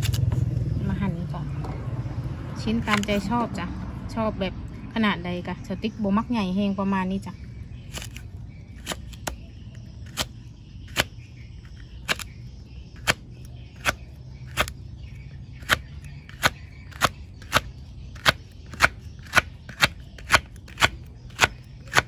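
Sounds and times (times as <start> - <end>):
knife chopping on wooden board: 13.8 - 14.8, 15.6 - 22.0.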